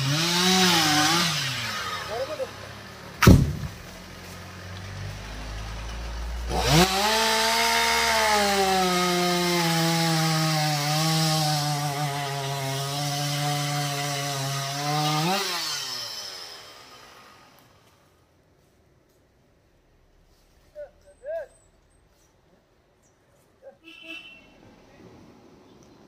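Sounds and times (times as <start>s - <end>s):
chainsaw idling and revving: 0.0s - 4.0s, 5.0s - 18.1s
log thumping on ground: 3.2s - 4.0s.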